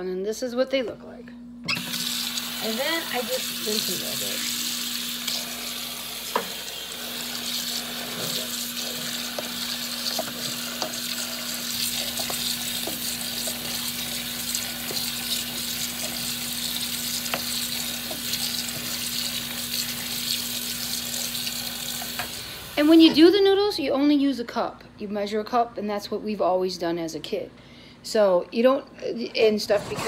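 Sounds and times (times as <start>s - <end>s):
tap water running: 1.7s - 23.2s.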